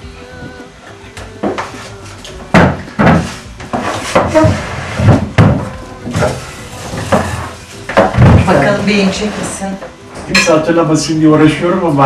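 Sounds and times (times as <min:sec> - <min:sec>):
wooden chair knocks and bumps: 0:02.5 - 0:08.7.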